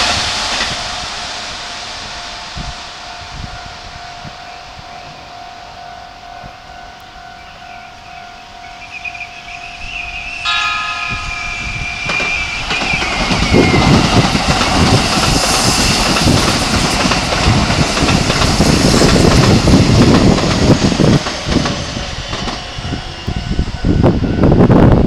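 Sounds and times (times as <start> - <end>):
train wheels clacking: 0.0 - 5.2, 6.4 - 25.0
train horn: 2.0 - 14.0, 21.9 - 25.0.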